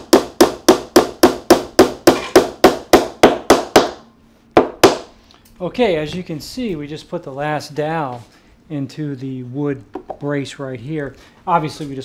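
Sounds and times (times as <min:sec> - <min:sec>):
hammer striking wood: 0:00.0 - 0:04.0, 0:04.6 - 0:05.1.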